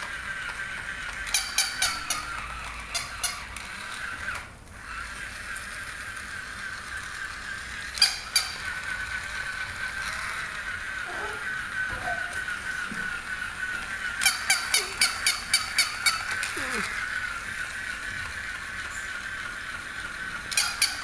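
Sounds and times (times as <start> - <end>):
high whine from toy: 0.0 - 21.0
toy dog electronic barking: 1.3 - 3.5, 7.7 - 13.4, 14.0 - 17.3, 20.5 - 21.0.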